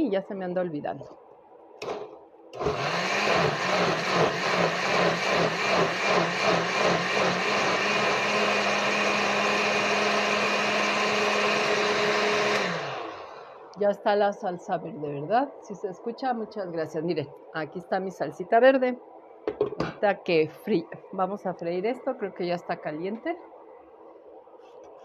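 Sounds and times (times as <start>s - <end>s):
blender motor: 2.6s - 13.8s.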